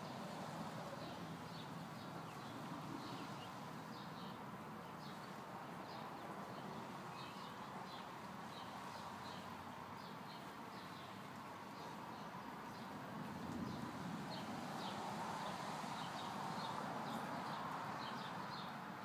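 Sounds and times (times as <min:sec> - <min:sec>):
outdoor background hiss: 0:00.0 - 0:19.0
small birds chirping: 0:00.9 - 0:13.0.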